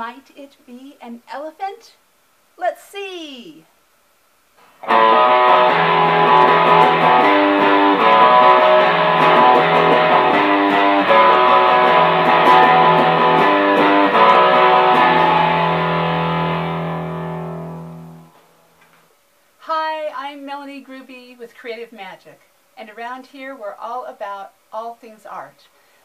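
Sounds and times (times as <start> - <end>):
intro music with held notes: 4.8 - 18.4.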